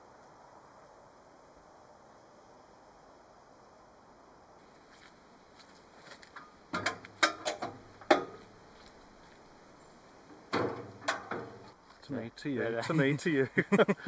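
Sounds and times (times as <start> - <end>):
metal clunk: 6.3 - 8.5, 10.4 - 11.8
spare wheel carrier clanking shut: 6.7 - 8.4, 10.5 - 11.8.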